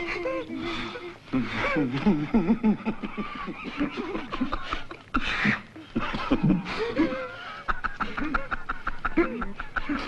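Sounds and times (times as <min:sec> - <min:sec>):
men stifling laughter: 0:01.4 - 0:10.0.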